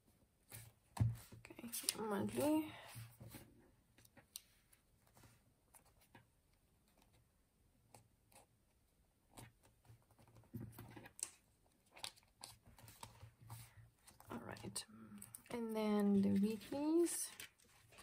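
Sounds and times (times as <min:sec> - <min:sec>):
paper rustling: 0:16.0 - 0:18.0.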